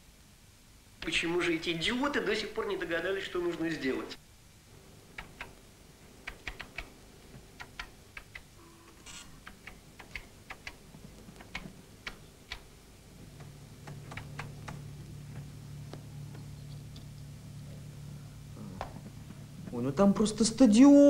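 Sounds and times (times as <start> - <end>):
low steady hum: 0.0 - 21.0
keys clicking on computer keyboard: 5.1 - 5.6, 6.2 - 6.9, 7.6 - 8.5, 9.1 - 12.7, 13.4 - 14.8.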